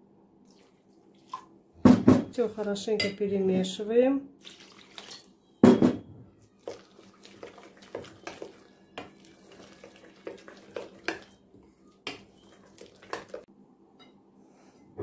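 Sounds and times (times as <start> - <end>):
water pouring into glass bowl: 4.4 - 5.3, 6.6 - 11.4.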